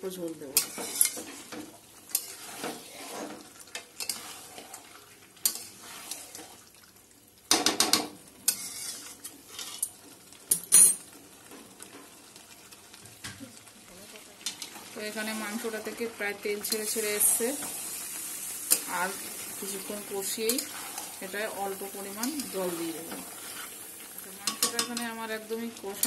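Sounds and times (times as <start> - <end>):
low sizzle: 0.0 - 26.0
metal spatula scraping a pan: 0.6 - 6.6, 7.9 - 10.0, 16.7 - 25.2.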